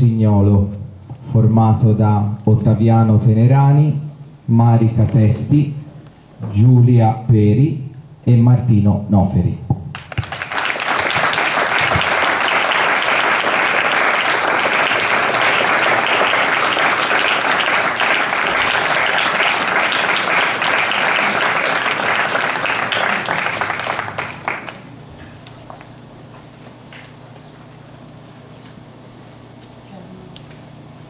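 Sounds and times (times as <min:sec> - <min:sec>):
audience applauding: 0:09.9 - 0:25.0.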